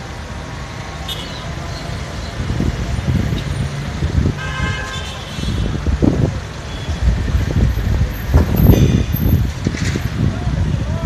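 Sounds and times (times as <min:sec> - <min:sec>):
street traffic rumbling: 0:00.0 - 0:11.0
vehicle horn: 0:04.4 - 0:05.7.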